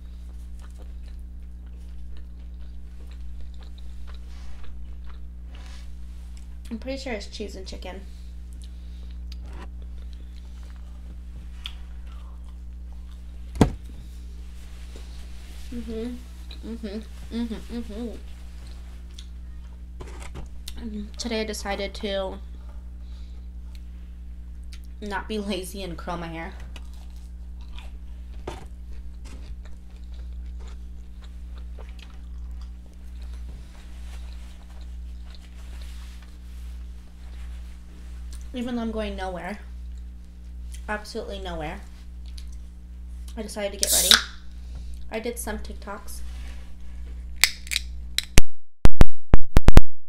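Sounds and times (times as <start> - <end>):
low electrical hum: 0.0 - 48.4
chewing and mouth clicks: 0.3 - 5.3, 26.8 - 28.0, 29.4 - 33.4, 42.2 - 42.6.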